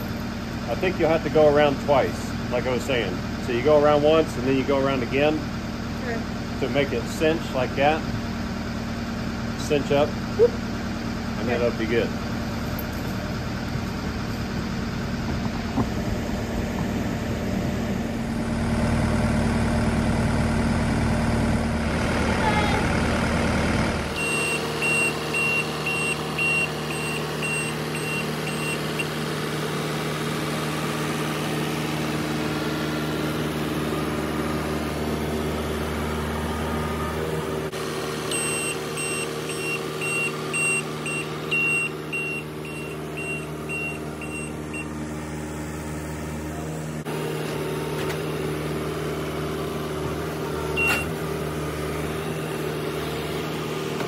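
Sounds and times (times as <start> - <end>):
diesel engine running: 0.0 - 54.0
reversing alarm beeping: 24.2 - 29.2, 38.3 - 45.0, 50.8 - 51.1.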